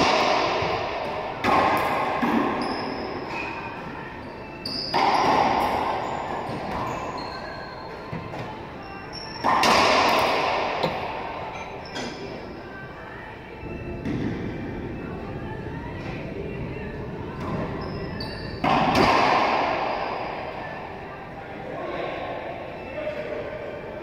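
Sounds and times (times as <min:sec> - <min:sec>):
racquetball hits echoing: 0:00.0 - 0:04.0, 0:04.8 - 0:07.6, 0:09.4 - 0:12.2, 0:18.6 - 0:20.6
sneaker squeaks on hardwood floor: 0:02.3 - 0:12.5, 0:17.4 - 0:18.9.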